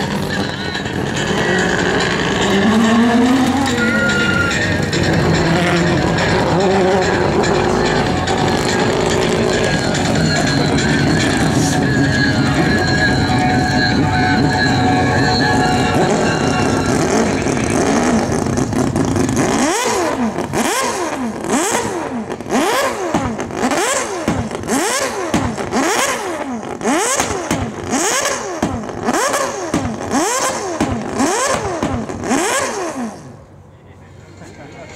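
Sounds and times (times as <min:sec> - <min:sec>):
rotary racing engine revving: 0:00.0 - 0:33.6.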